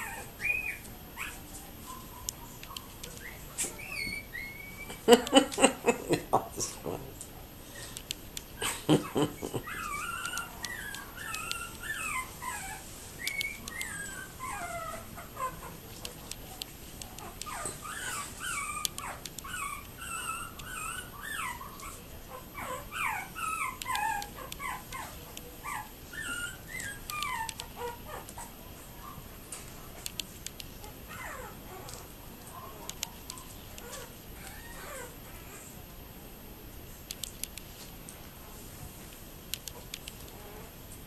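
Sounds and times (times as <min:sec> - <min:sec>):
puppies whimpering and squeaking: 0:00.0 - 0:07.0, 0:08.6 - 0:16.4, 0:17.2 - 0:29.2, 0:30.8 - 0:35.7.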